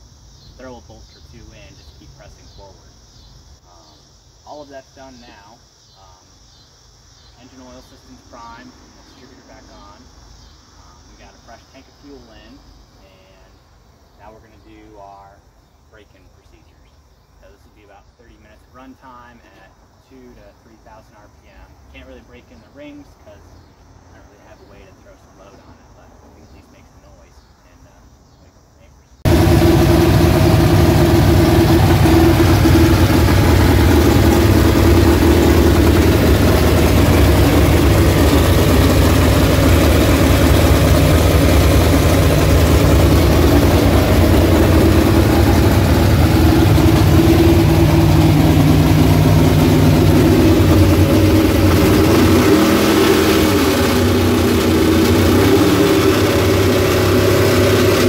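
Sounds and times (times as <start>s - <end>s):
engine running: 7.4s - 10.1s, 29.2s - 58.0s.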